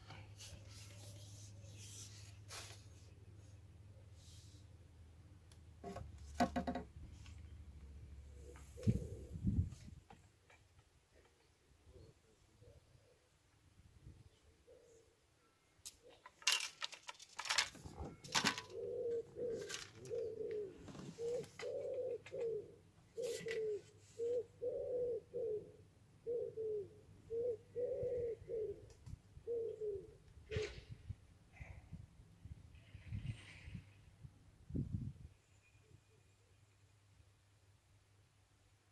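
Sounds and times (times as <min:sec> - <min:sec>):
sharp clicks and knocks: 0:05.8 - 0:06.9
pigeon cooing: 0:08.3 - 0:09.6, 0:18.0 - 0:31.0.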